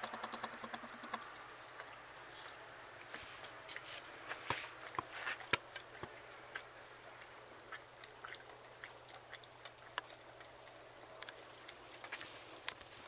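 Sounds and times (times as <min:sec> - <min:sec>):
teeth clicking against plastic bowl: 0:00.0 - 0:01.3
dog licking and chewing: 0:00.0 - 0:13.0.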